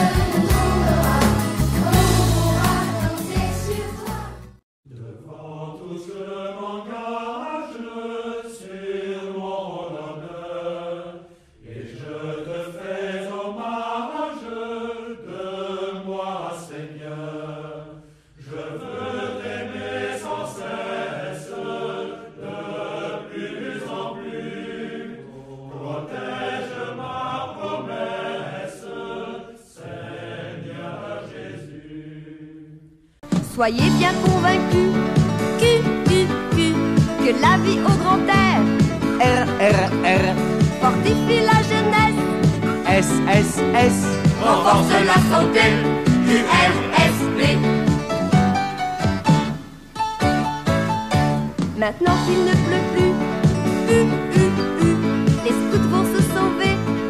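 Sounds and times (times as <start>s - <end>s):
group of voices chanting: 35.6s - 47.7s.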